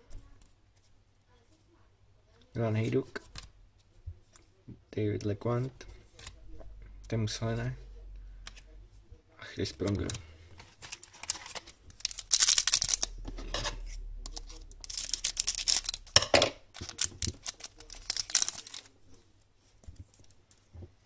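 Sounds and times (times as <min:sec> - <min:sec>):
foil wrapper crinkling and tearing: 0:10.0 - 0:13.3, 0:14.3 - 0:19.0.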